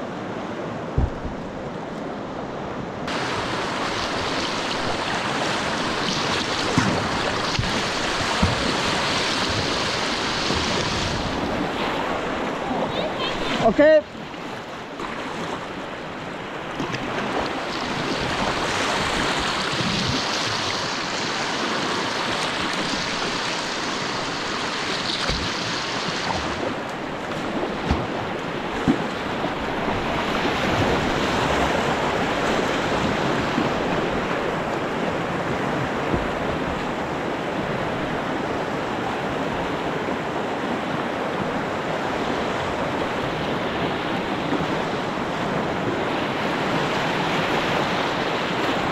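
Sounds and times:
white water rushing: 0:00.0 - 0:48.9
brief knocks: 0:01.0 - 0:01.4.

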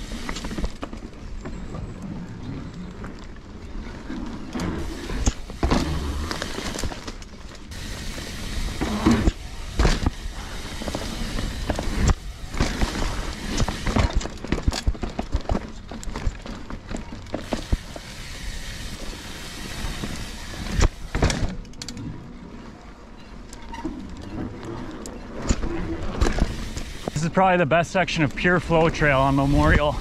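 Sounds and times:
bike rattling over bumps: 0:00.0 - 0:27.2
tyre and wind rushing: 0:03.6 - 0:21.3.

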